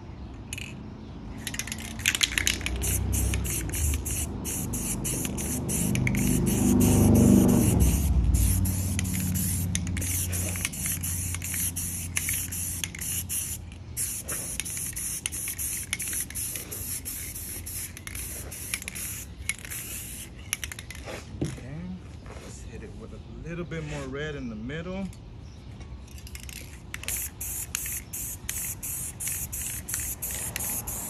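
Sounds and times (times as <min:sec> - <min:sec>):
spray paint can hissing: 0:01.4 - 0:21.0, 0:26.2 - 0:31.0.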